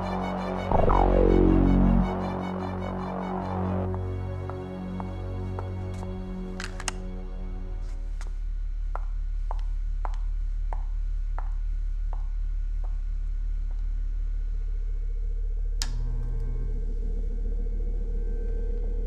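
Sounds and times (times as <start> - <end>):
steady low hum: 0.0 - 4.5.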